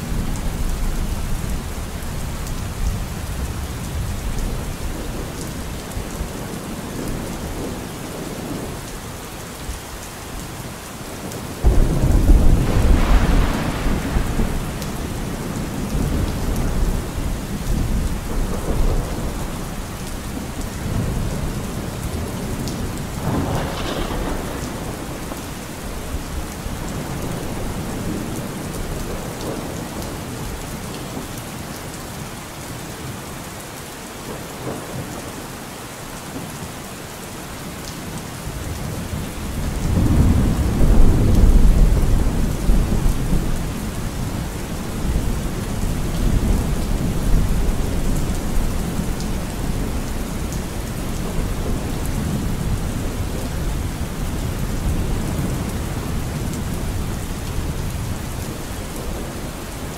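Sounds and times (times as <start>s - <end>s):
steady rain: 0.0s - 59.9s
thunder rumble: 11.6s - 29.9s.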